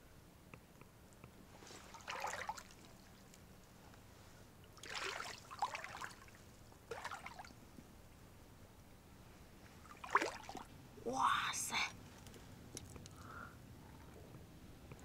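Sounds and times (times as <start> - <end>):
water trickling and splashing: 1.6 - 3.5, 4.6 - 7.6, 9.8 - 10.7.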